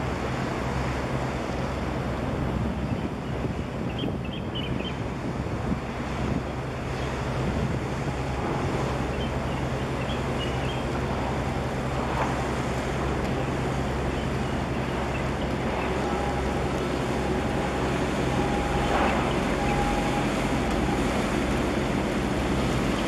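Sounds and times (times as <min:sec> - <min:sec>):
ship engines droning: 0:00.0 - 0:23.0
wind buffeting microphone: 0:00.0 - 0:23.0
water washing: 0:05.0 - 0:23.0.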